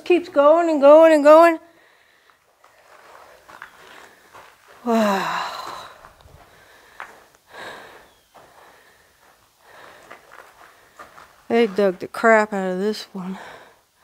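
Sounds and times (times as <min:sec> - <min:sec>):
person breathing: 0:01.7 - 0:11.2, 0:13.2 - 0:14.0.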